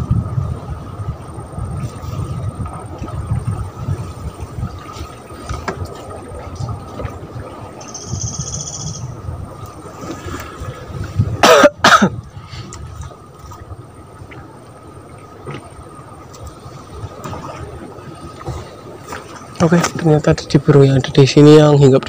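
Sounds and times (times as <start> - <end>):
low background rumble: 0.0 - 22.0
person coughing: 11.4 - 12.2.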